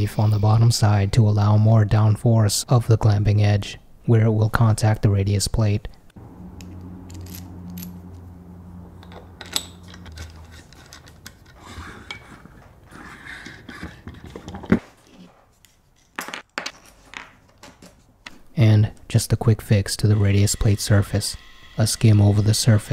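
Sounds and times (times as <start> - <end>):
low steady hum: 0.0 - 12.6
small metal parts clinking: 6.6 - 8.2, 9.0 - 12.2.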